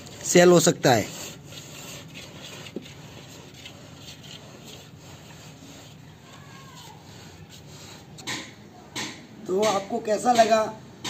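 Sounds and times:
powder stirred in steel bowl: 0:00.0 - 0:08.6.

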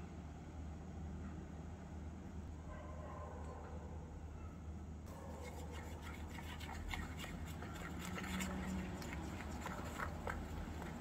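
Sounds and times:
utensil scraping a steel bowl: 0:05.3 - 0:11.0.

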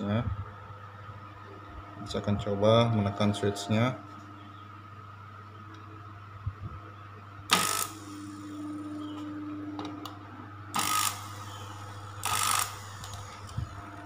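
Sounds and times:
electric motor whirring: 0:07.5 - 0:08.7, 0:10.8 - 0:14.0.

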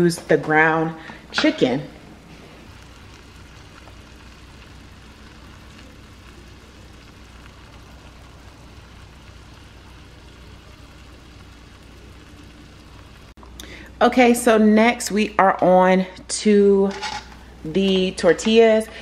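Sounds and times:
meat sizzling in a frying pan: 0:01.3 - 0:13.4.

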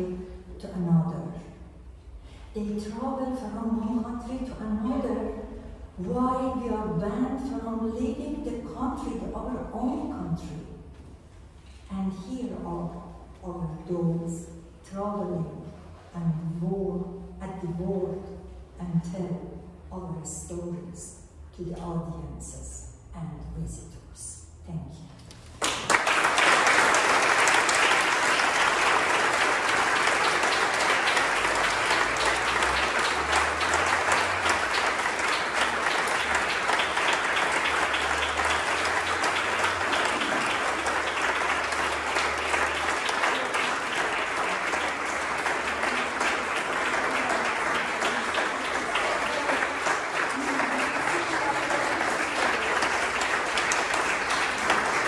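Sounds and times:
audience applause: 0:25.6 - 0:55.0.

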